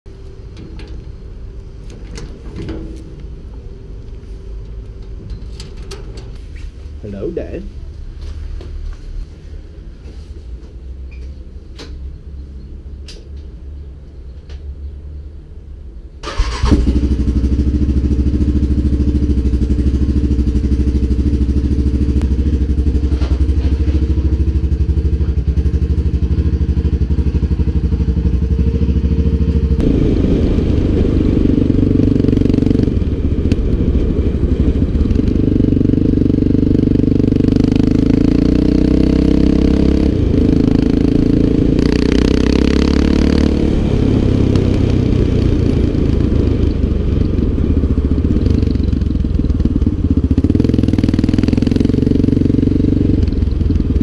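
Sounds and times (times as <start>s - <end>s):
quad engine starting and revving: 16.2s - 19.5s, 29.8s - 54.0s.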